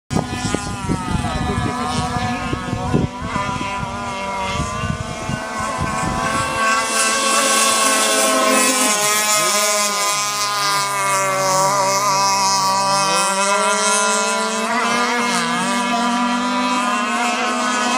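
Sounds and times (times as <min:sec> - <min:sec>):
wind rumble on microphone: 0:00.1 - 0:12.9
model boat engines whining: 0:00.2 - 0:17.9.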